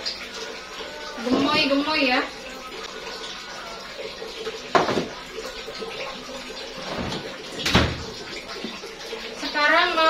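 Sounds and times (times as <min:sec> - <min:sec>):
donuts frying in oil: 0:00.0 - 0:10.0
sharp kitchen knocks: 0:04.7 - 0:05.2, 0:06.9 - 0:08.2.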